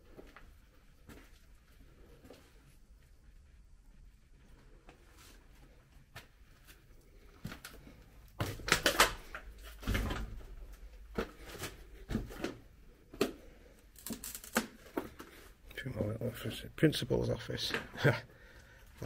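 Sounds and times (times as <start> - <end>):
footsteps on littered floor: 4.9 - 13.5.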